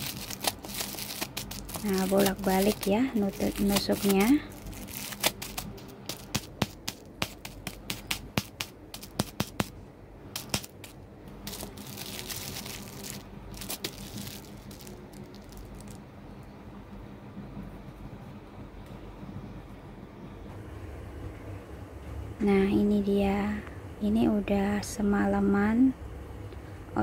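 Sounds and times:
plastic bag being pierced: 0.0s - 9.7s, 10.3s - 16.0s
plastic crinkling: 0.0s - 9.7s, 10.4s - 16.0s.

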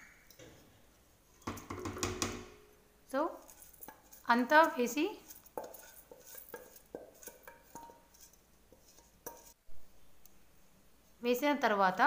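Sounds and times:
spoon scraping steel bowl: 3.4s - 9.6s.

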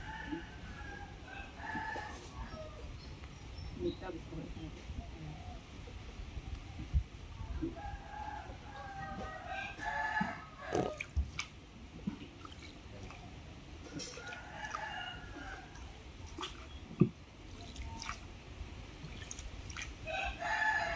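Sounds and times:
rooster crowing: 7.8s - 11.0s, 14.2s - 15.8s, 20.1s - 20.9s
wooden paddle knocks and splashes: 10.7s - 13.2s, 16.3s - 18.2s.

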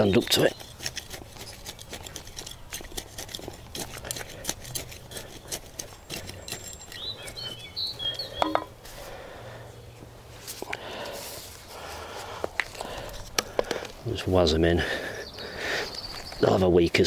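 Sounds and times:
small bird chirping: 0.0s - 2.5s, 5.9s - 8.8s, 15.1s - 16.7s
trowel scraping garden soil: 0.0s - 9.1s.

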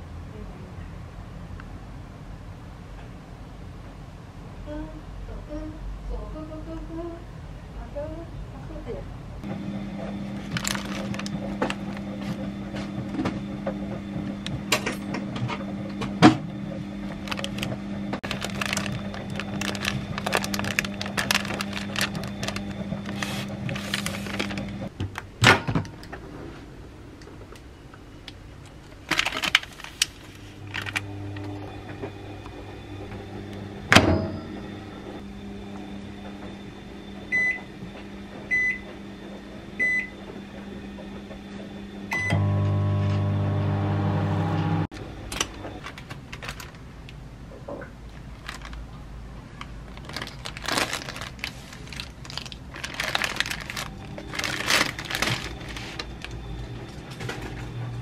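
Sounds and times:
microwave oven humming: 1.6s - 58.0s
plastic packaging rustling: 10.3s - 12.4s, 17.1s - 24.9s, 28.9s - 31.1s, 45.4s - 47.2s, 48.1s - 57.6s.

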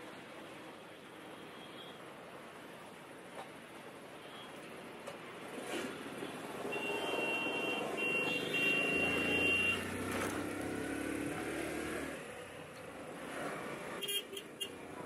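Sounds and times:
street traffic: 0.0s - 15.0s
vehicle passing close: 8.7s - 14.0s.

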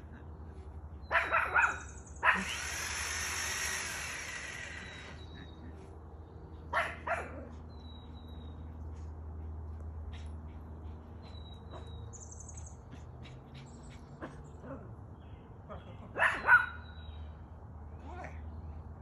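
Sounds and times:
small puppy barking: 1.1s - 2.5s, 6.7s - 7.5s, 16.1s - 16.8s.

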